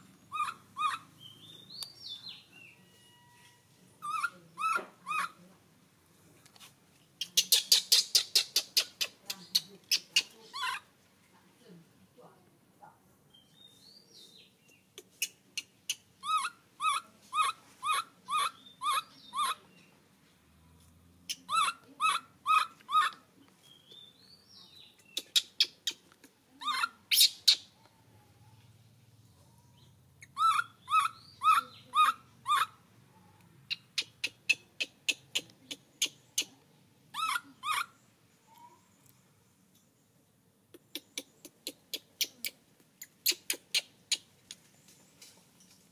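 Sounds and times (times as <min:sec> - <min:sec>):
infant monkey squeaky calls: 0:00.3 - 0:01.1, 0:04.0 - 0:05.4, 0:07.2 - 0:10.8, 0:15.0 - 0:19.6, 0:21.3 - 0:23.2, 0:25.1 - 0:27.8, 0:30.2 - 0:32.8, 0:33.7 - 0:38.8, 0:40.9 - 0:44.3.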